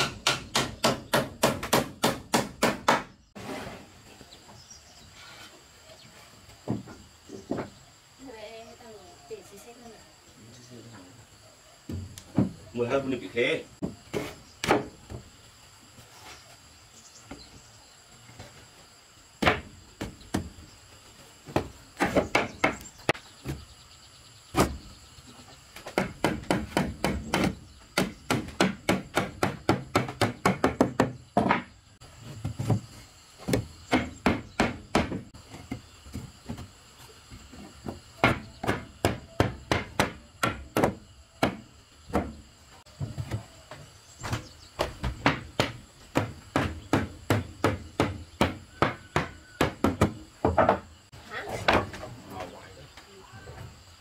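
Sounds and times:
hammer striking wood: 0.0s - 3.2s, 25.8s - 31.7s, 33.5s - 35.3s, 37.8s - 42.4s, 44.8s - 50.8s.

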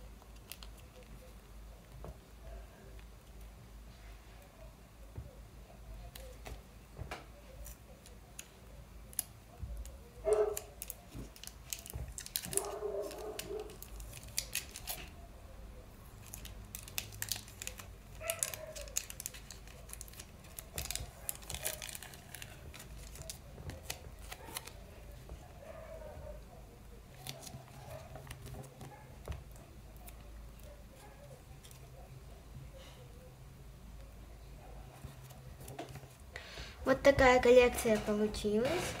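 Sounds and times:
paper and tape rustling: 0.2s - 1.3s, 6.0s - 15.2s, 16.1s - 26.1s, 27.1s - 32.1s, 34.9s - 36.2s, 36.8s - 39.0s.

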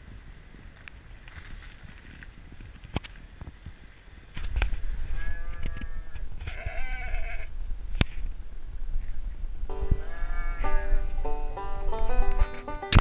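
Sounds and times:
sheep bleating: 10.0s - 11.0s.

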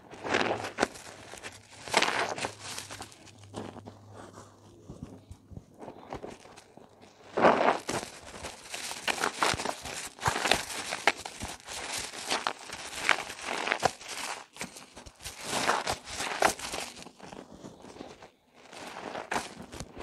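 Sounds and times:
wet squishing of soap lather: 7.4s - 18.0s.

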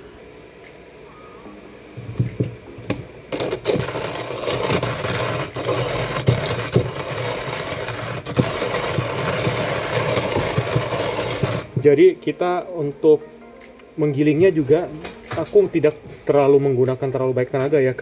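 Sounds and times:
hand grinder crushing coffee beans: 3.3s - 11.8s.

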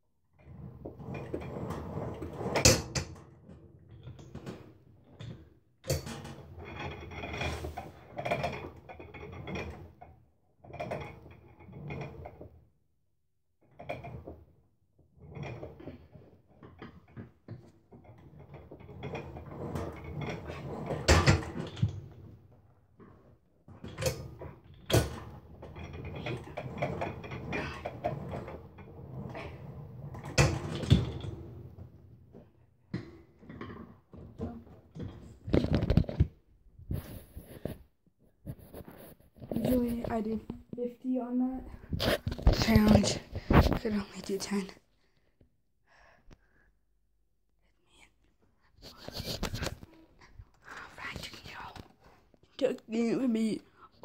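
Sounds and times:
gym machine cables rattling: 24.0s - 32.4s.

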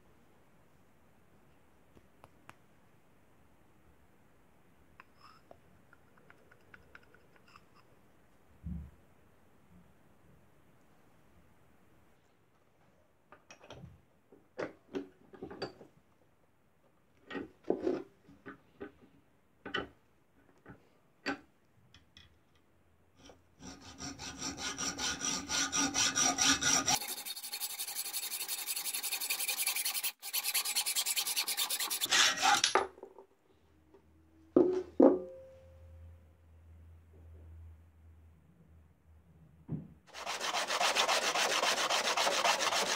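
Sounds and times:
abrasive rasping on glass jar: 26.4s - 32.1s.

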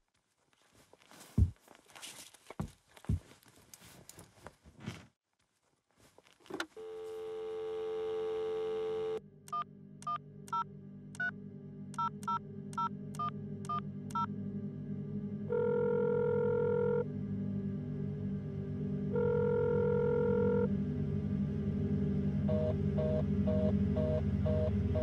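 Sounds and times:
telephone ringing tone: 6.8s - 9.2s, 15.5s - 17.0s, 19.1s - 20.7s
dial tone: 6.8s - 11.3s, 15.5s - 17.1s, 19.1s - 20.7s, 22.5s - 25.0s
low drone: 9.2s - 25.0s.

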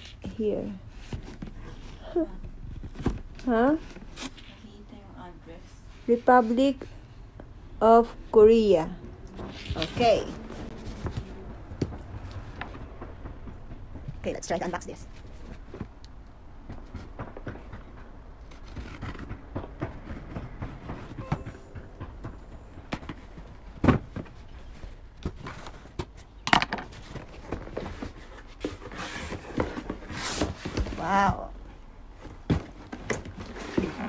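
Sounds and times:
cardboard rustling scrape: 9.4s - 12.8s, 26.9s - 31.4s, 32.2s - 34.0s.

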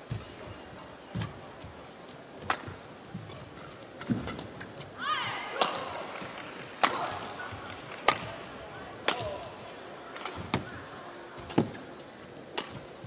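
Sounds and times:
racket striking shuttlecock: 6.8s - 7.2s, 8.0s - 8.4s, 9.0s - 9.5s, 12.6s - 12.9s.

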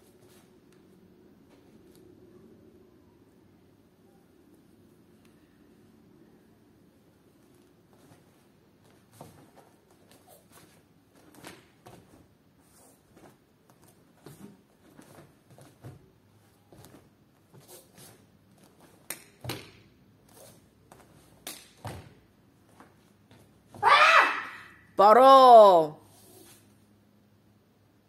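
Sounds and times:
uniform swishing: 16.8s - 19.0s.

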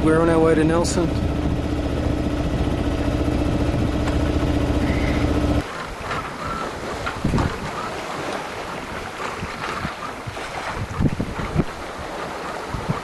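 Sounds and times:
boat engine droning: 0.0s - 9.2s.

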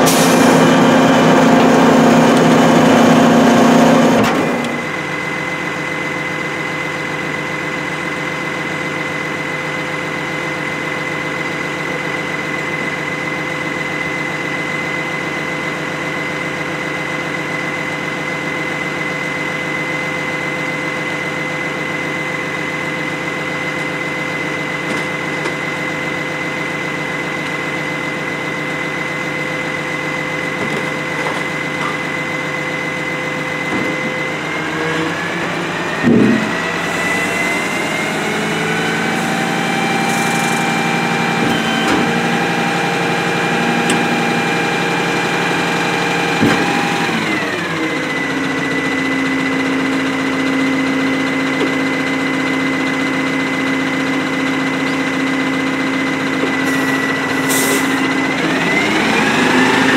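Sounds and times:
diesel engine idling: 0.0s - 59.9s
high whine: 36.4s - 44.6s.

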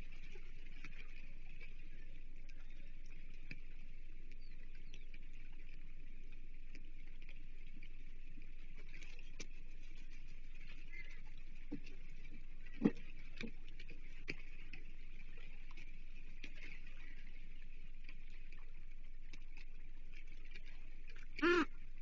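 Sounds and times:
light taps and stick rustles: 11.6s - 15.0s.

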